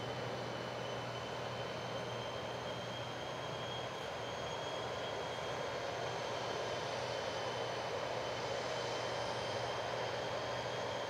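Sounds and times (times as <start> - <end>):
jet engines running with whine: 0.0 - 11.0.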